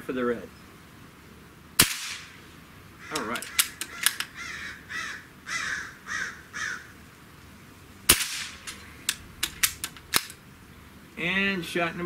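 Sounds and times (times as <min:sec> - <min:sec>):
air rifle shot: 0:01.8 - 0:02.4, 0:08.1 - 0:10.3
crow cawing: 0:03.0 - 0:07.0
rifle action clicks: 0:03.1 - 0:04.3, 0:08.1 - 0:10.4.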